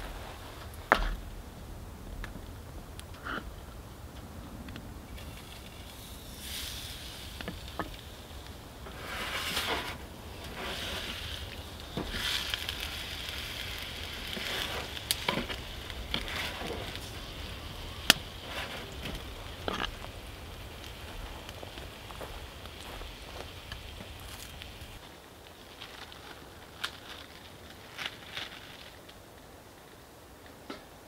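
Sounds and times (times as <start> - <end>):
steak sizzling in a frying pan: 10.3 - 21.1.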